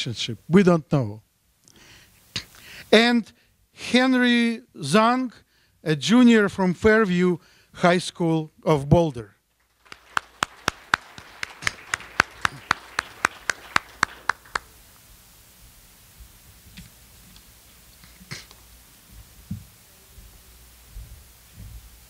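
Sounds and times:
hands clapping: 0:09.6 - 0:14.8.

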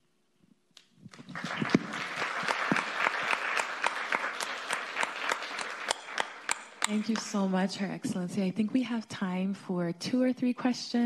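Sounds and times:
audience applauding: 0:01.1 - 0:07.6.

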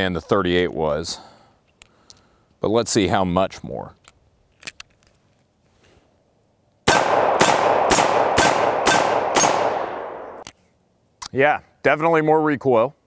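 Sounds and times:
revolver gunshots: 0:06.9 - 0:10.4.

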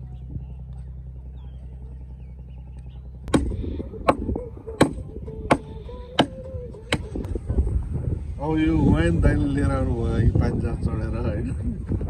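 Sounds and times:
low wind rumble: 0:00.0 - 0:12.0.

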